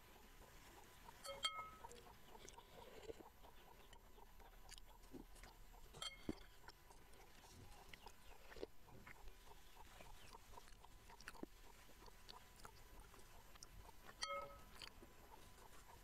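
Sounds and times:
faint chewing: 0:00.0 - 0:16.0
spoon clinking against glass bowl: 0:01.2 - 0:01.8, 0:06.0 - 0:06.4, 0:14.2 - 0:14.7.

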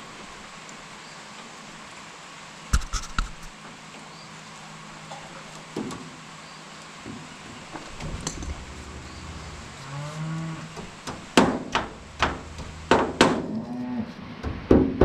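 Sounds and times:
hammer striking steel: 0:11.1 - 0:13.5.

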